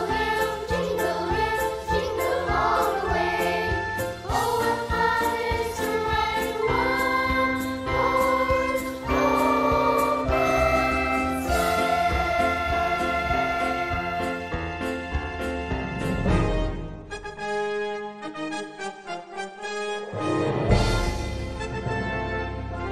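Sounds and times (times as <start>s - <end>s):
choir singing carols: 0.0s - 15.0s
instrumental ensemble: 0.0s - 22.9s.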